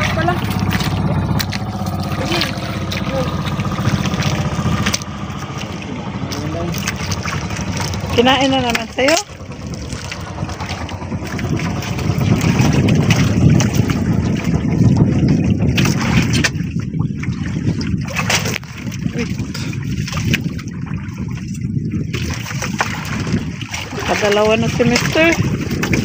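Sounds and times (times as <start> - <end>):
water lapping against hull: 0.0 - 26.0
wind on microphone: 0.0 - 26.0.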